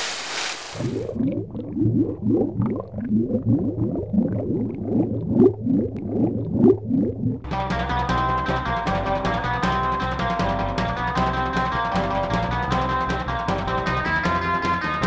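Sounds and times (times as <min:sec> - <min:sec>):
low bubbling blips: 0:00.8 - 0:09.9
music: 0:07.5 - 0:15.0.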